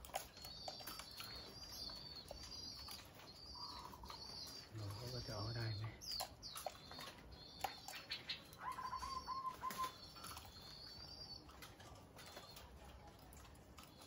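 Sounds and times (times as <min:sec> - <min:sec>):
small birds chirping: 0:00.0 - 0:14.0
dove cooing: 0:02.8 - 0:06.0, 0:06.7 - 0:14.0.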